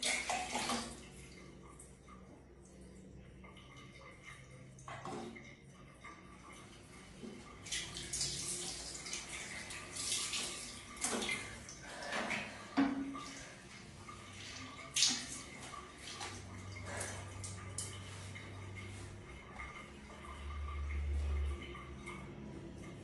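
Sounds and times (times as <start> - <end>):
water splashing on tiled floor: 0.0 - 1.1, 7.6 - 12.6, 14.4 - 19.8.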